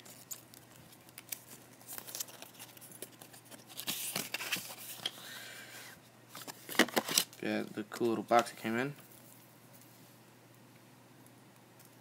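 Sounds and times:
packaging rustling and crinkling: 0.0 - 5.2.

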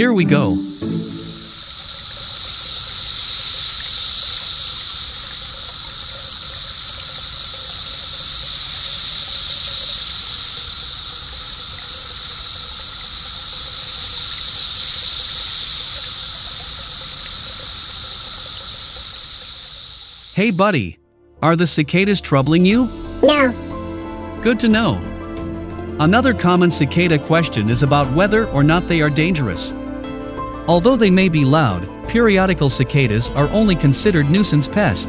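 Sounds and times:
cicadas buzzing: 0.0 - 20.6.

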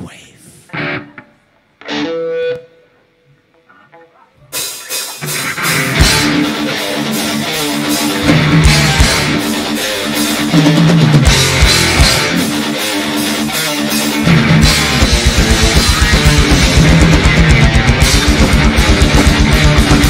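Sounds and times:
electric guitar riffing: 0.6 - 20.0
heavy metal band: 4.5 - 20.0.

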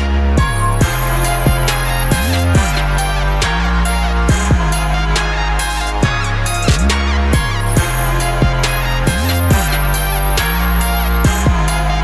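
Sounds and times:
drum beat: 0.4 - 3.5, 7.6 - 11.5
sliding deep bass notes: 0.4 - 12.0.

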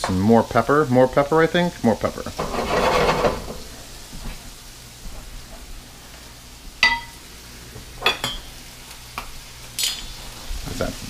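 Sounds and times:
metal utensils clinking: 6.8 - 7.2, 9.8 - 10.1.

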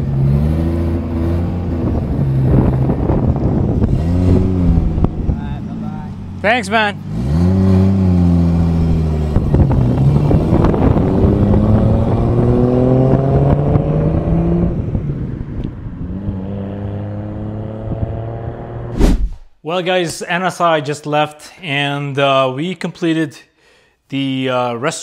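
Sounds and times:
car accelerating through gears: 7.0 - 15.0.

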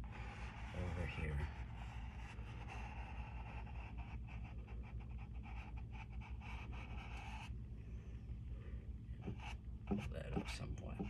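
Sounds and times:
paintbrush scratching on canvas: 0.0 - 7.5
steady background hum: 0.0 - 11.0.

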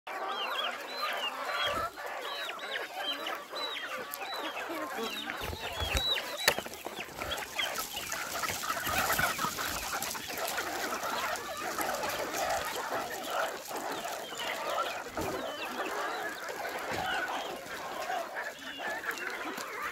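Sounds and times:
chickens clucking: 0.1 - 19.9.

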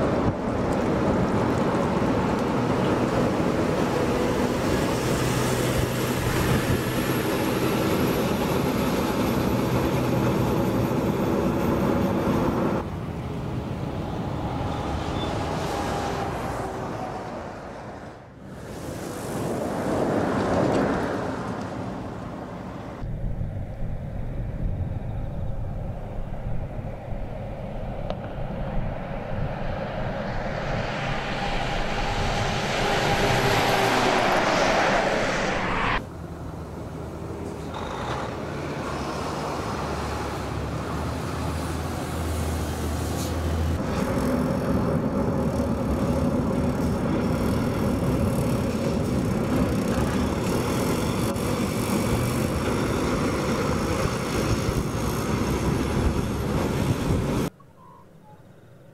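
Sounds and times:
truck diesel engine: 0.0 - 18.4, 30.4 - 57.5
tyres running on road: 0.0 - 23.0.

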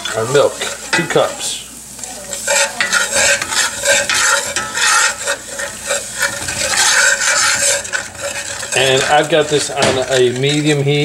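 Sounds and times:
roux sizzling: 0.0 - 11.0
spoon scraping skillet: 0.0 - 11.0.

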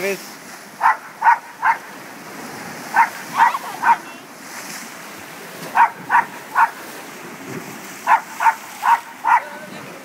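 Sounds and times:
surf breaking on rocks: 0.0 - 10.0
small dog barking: 0.8 - 1.9, 2.9 - 4.1, 5.7 - 6.8, 8.0 - 9.6.

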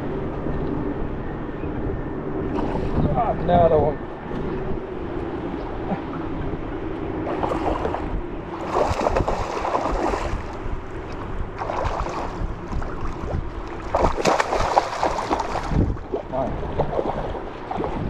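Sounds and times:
wind buffeting microphone: 0.0 - 18.0
water lapping at boat hull: 4.2 - 18.0
fish splashing at surface: 13.8 - 15.9.

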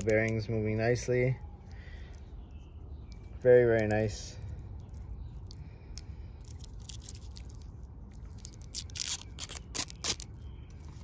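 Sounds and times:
plastic film crackling: 6.4 - 10.4.

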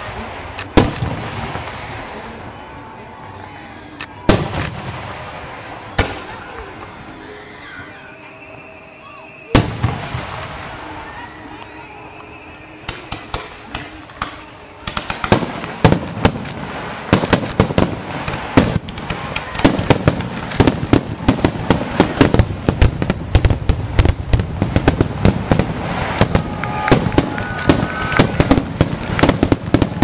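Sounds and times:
fireworks shells bursting: 13.0 - 30.0.

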